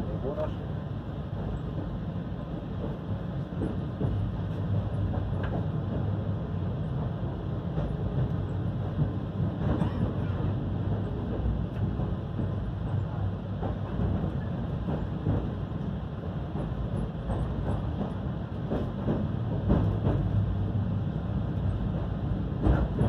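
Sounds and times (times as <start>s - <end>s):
train wheels rumbling on track: 0.0s - 23.0s.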